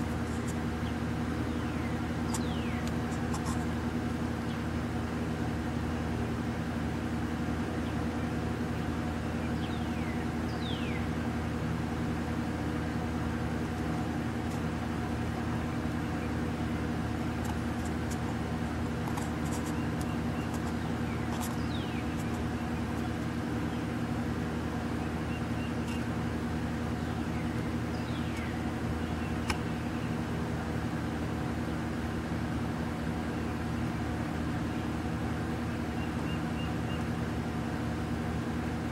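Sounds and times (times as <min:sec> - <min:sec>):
motor humming: 0:00.0 - 0:38.9
whistled bird calls: 0:01.5 - 0:02.8, 0:09.4 - 0:11.1, 0:36.0 - 0:37.1.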